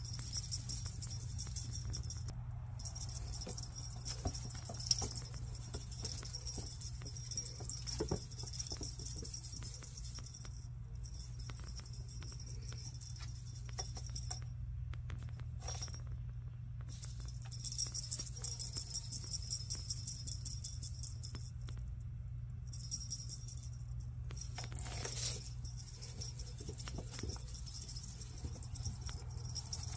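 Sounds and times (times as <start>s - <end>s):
tinsel jingling and crinkling: 0.0s - 14.4s, 15.5s - 16.1s, 16.9s - 21.6s, 22.7s - 29.9s
low steady hum: 0.0s - 29.9s.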